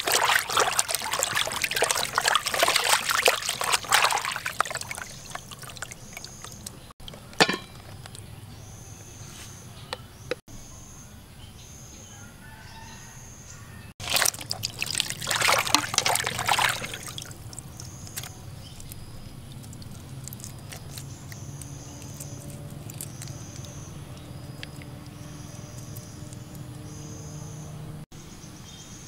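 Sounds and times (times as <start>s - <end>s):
water splashing in plastic basin: 0.0s - 7.6s, 14.0s - 27.0s.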